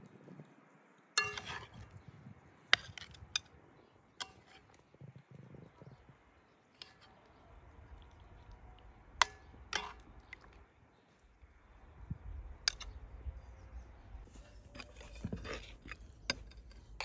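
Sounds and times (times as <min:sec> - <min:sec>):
metal spoon clinking on a pan: 0:01.2 - 0:01.8.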